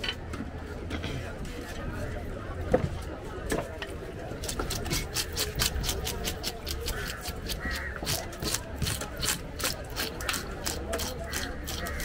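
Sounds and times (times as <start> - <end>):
fish scaler scraping scales: 4.5 - 12.0.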